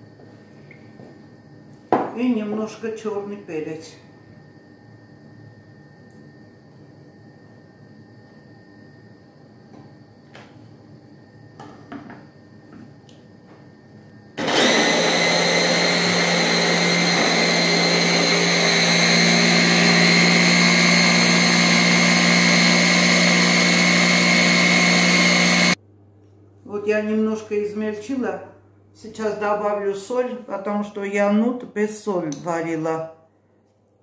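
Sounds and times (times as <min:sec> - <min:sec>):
hand blender motor chopping: 0:14.4 - 0:25.8.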